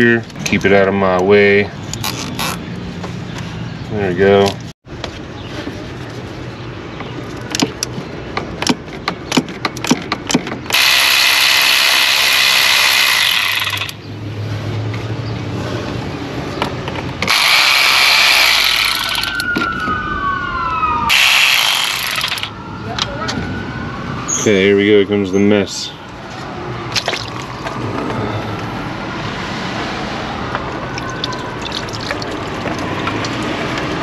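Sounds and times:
sharp clicks and knocks: 7.0s - 10.8s
cordless power tool running: 10.7s - 14.0s, 17.3s - 19.4s, 21.1s - 22.5s.

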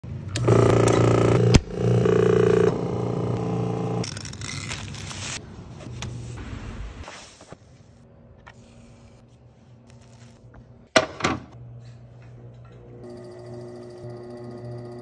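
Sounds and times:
electric motor humming: 0.3s - 4.0s.

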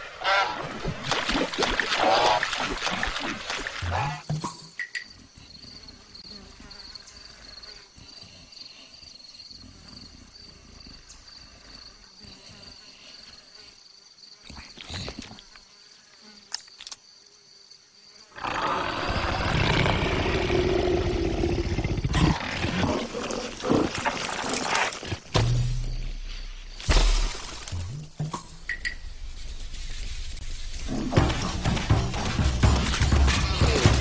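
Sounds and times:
high insect drone: 4.0s - 24.0s
leopard growling: 18.4s - 25.1s.

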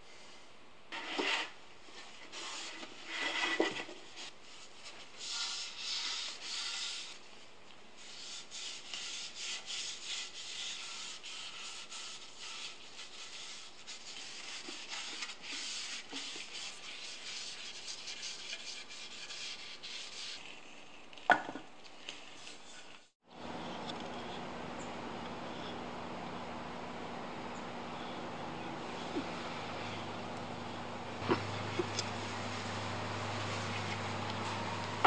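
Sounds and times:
cloth rag wiping wood: 1.0s - 7.2s, 8.0s - 20.8s.

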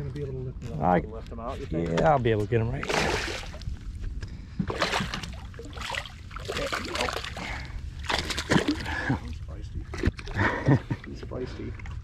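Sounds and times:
fish splashing at water surface: 2.8s - 3.6s, 4.7s - 9.1s.

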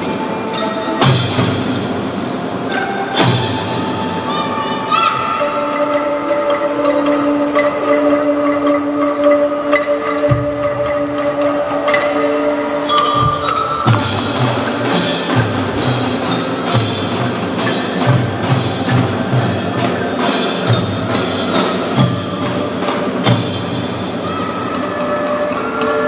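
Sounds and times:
marimba and xylophone notes: 0.0s - 26.0s
snare drum: 13.1s - 24.0s.

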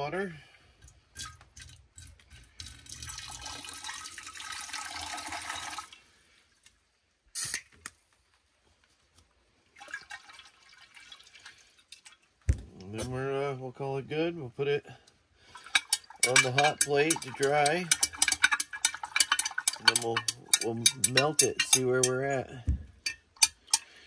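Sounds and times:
water pouring into glass beaker: 1.2s - 6.0s, 15.6s - 21.8s
water sloshing in beaker: 15.5s - 22.1s.

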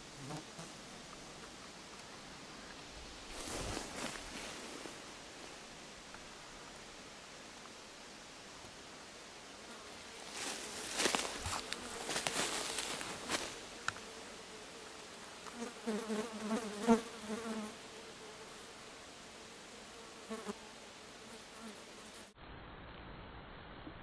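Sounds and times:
flying insect buzzing: 0.0s - 1.5s, 9.6s - 22.4s
brush rustling underfoot: 1.0s - 7.8s, 10.0s - 14.1s.

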